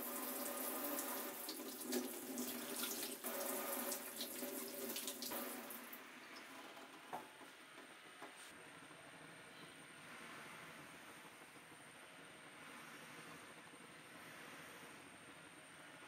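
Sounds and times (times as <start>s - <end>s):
tap water splashing into sink: 0.0s - 5.8s
water dripping: 0.0s - 6.5s.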